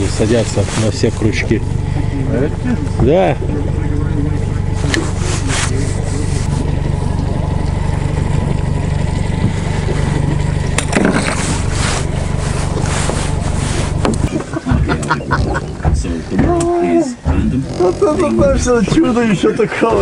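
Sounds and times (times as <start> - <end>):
outboard motor running: 0.0 - 20.0
knocks and rattles: 9.4 - 11.7, 14.0 - 20.0.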